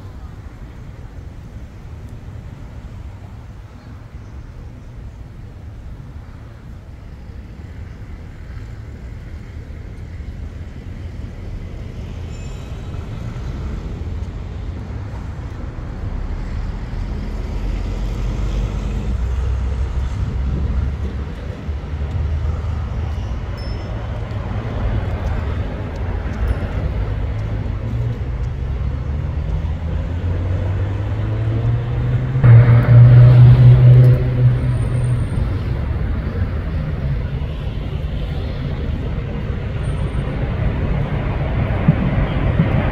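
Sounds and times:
street traffic rumble: 0.0s - 42.9s
vehicle accelerating nearby: 15.4s - 23.1s, 24.8s - 42.9s.

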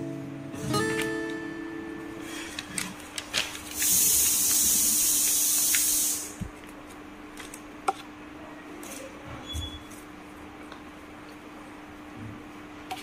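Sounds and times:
paper crinkling: 2.3s - 4.7s
paper rubbing hiss: 2.3s - 6.4s.

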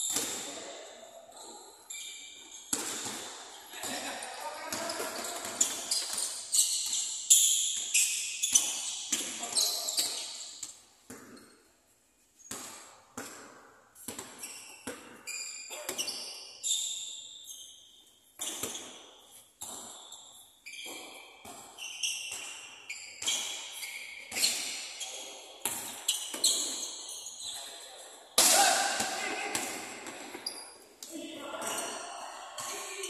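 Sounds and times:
sneakers squeaking on floor: 0.0s - 33.0s.

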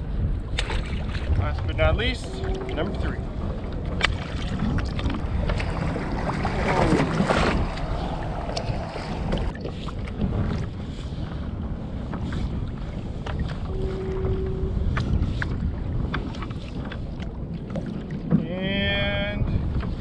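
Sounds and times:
water lapping against kayak: 0.0s - 20.0s
wind buffeting microphone: 0.0s - 20.0s.

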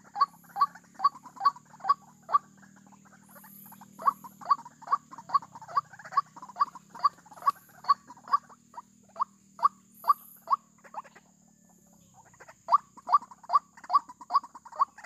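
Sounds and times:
waterhen calling: 0.0s - 11.2s, 12.2s - 15.0s.

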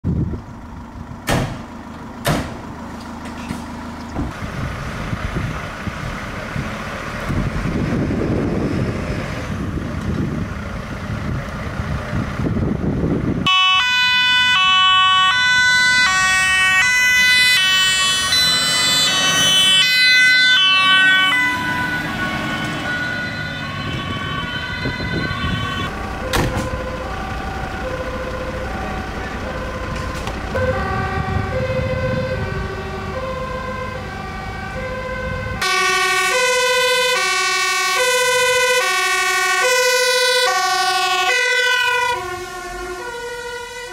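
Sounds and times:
fire engine diesel engine revving: 0.1s - 43.9s
two-tone siren: 13.4s - 43.9s.

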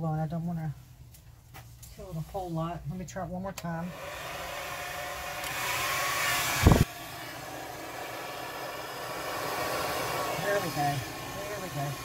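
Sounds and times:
hair dryer running: 3.9s - 12.0s.

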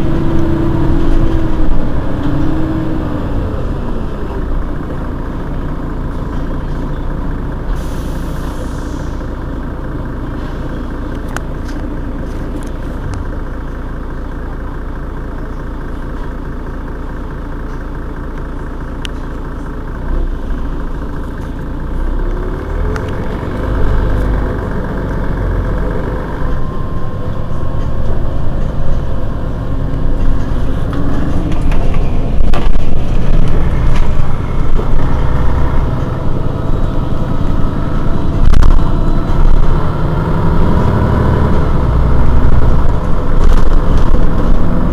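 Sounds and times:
bus diesel engine: 0.0s - 44.9s.

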